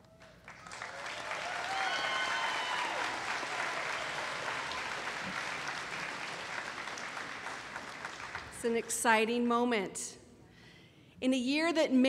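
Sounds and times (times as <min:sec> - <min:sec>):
crowd applauding: 0:00.0 - 0:09.0
person cheering: 0:01.3 - 0:04.8.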